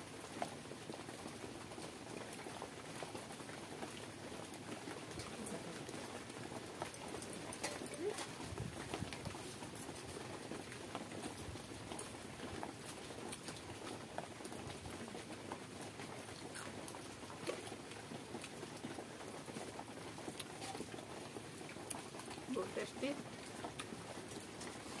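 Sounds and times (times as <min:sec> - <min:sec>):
chewing: 0:21.6 - 0:22.5, 0:23.4 - 0:25.0.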